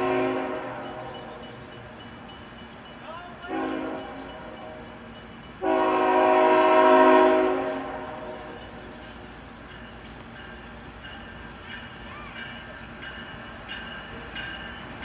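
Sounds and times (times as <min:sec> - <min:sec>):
locomotive air horn blasts: 0:00.0 - 0:01.1, 0:03.4 - 0:04.9, 0:05.6 - 0:08.6.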